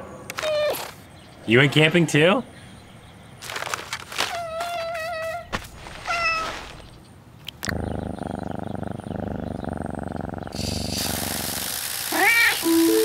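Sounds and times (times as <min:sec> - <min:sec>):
cat meowing: 0:04.3 - 0:06.6, 0:12.1 - 0:12.9
cat purring: 0:07.5 - 0:13.0
lawn sprinklers hissing: 0:10.6 - 0:13.0.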